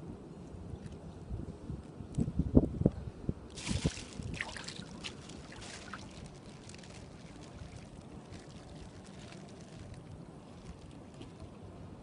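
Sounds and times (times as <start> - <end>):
water splashing: 3.5 - 9.8
water trickling and dripping: 3.6 - 10.0.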